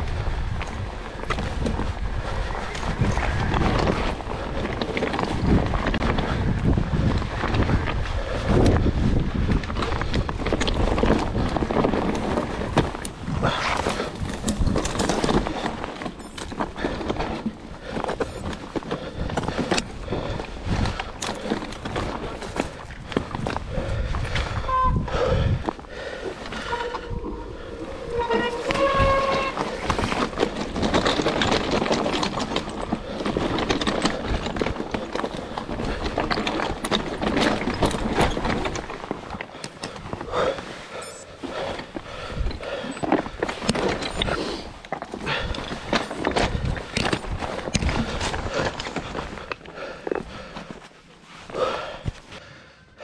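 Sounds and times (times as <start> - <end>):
wind buffeting microphone: 0.0 - 39.1, 45.2 - 49.5
mountain bike rattling over rough ground: 0.0 - 53.0
tyre rumble: 0.2 - 52.4
bike rattling knocks: 26.4 - 40.0
short high-pitched squeals: 26.6 - 29.8.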